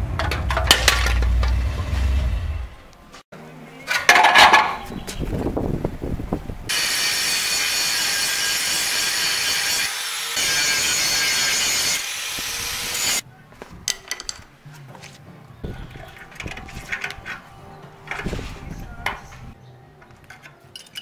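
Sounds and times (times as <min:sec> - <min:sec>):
angle grinder cutting metal: 0:06.7 - 0:13.2.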